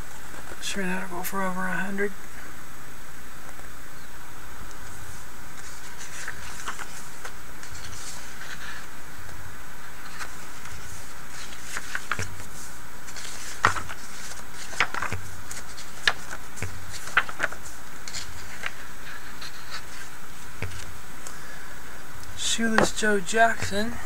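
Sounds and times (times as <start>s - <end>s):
steady buzzing hum: 0.0s - 24.0s
pages turning: 4.7s - 21.6s, 22.2s - 24.0s.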